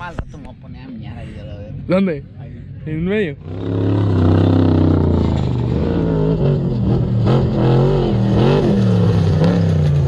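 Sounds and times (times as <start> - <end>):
race vehicle engines revving: 3.0 - 10.0.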